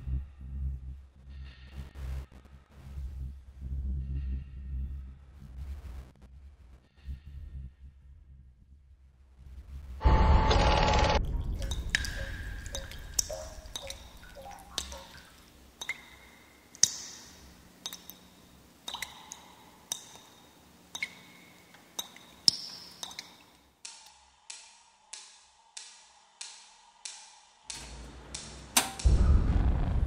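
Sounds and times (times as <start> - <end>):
even ticking: 11.2 - 20.3
water dripping into sink: 11.2 - 27.2.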